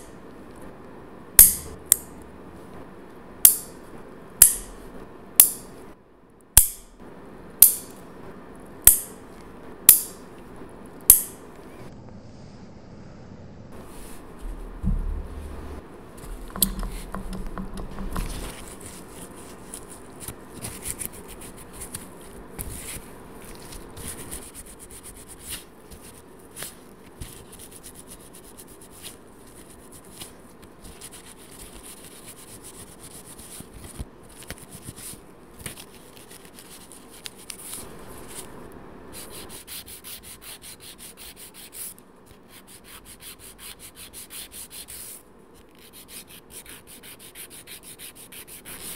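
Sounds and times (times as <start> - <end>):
pump bottle knocks: 14.8 - 15.3, 16.5 - 18.4
nail file strokes: 39.2 - 48.9.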